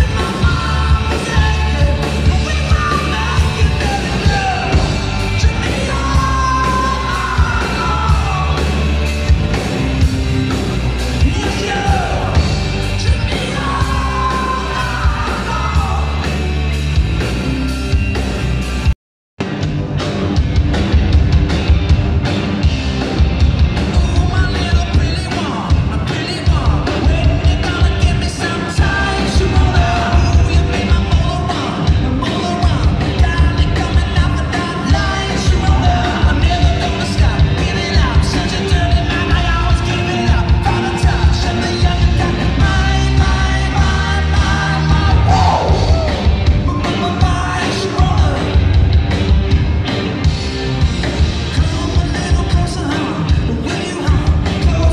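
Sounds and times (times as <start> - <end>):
man singing: 0.0 - 8.8, 11.1 - 16.3, 23.9 - 48.7, 51.5 - 54.9
drum kit beat: 0.0 - 54.9.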